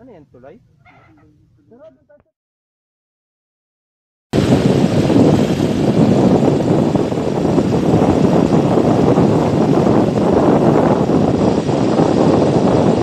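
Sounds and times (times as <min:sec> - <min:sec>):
motorcycle road noise: 0:04.4 - 0:13.0
wind rush: 0:04.4 - 0:13.0.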